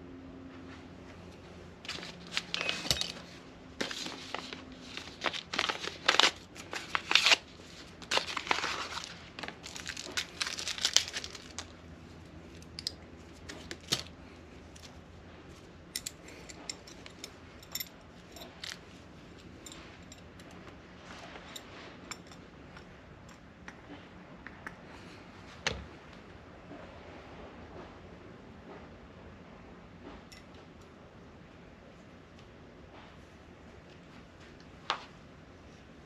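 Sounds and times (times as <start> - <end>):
packaging crinkling and tearing: 1.8 - 11.8, 13.4 - 14.1.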